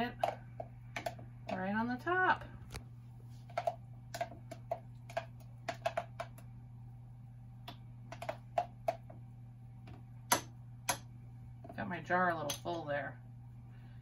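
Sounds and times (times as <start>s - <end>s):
spoon tapping and scraping cups: 0.0s - 1.6s, 3.4s - 6.4s, 8.1s - 9.2s
steady low hum: 0.0s - 14.0s.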